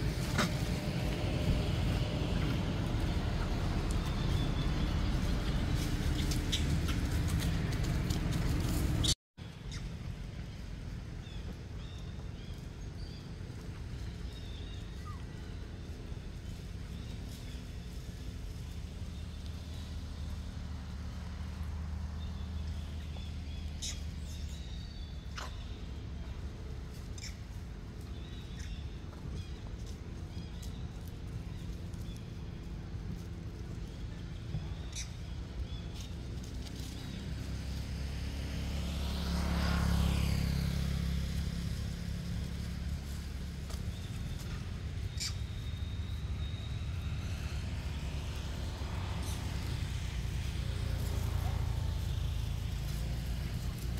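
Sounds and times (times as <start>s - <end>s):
low rumble: 0.0s - 9.2s
vehicle engine passing by: 0.0s - 53.9s.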